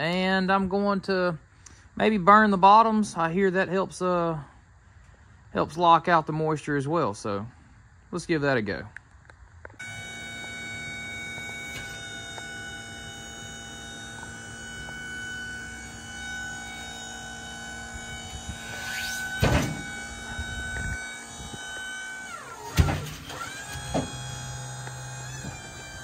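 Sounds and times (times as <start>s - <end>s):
band sawmill running: 9.8s - 26.0s.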